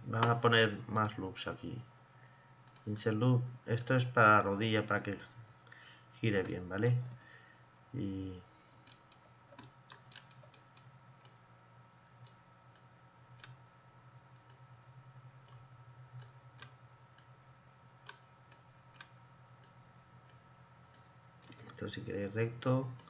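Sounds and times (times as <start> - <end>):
low steady hum: 0.0 - 23.0
computer mouse clicks: 2.6 - 2.9, 8.8 - 11.4, 12.0 - 13.6, 14.3 - 14.6, 16.2 - 17.3, 21.0 - 21.8.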